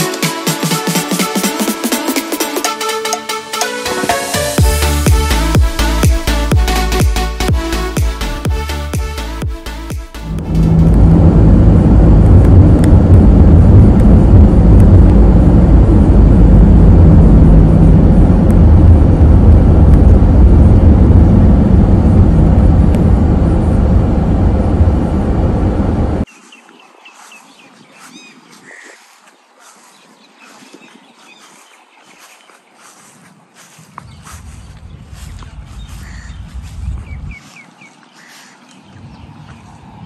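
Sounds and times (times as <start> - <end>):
road and engine noise inside car: 10.2 - 26.3.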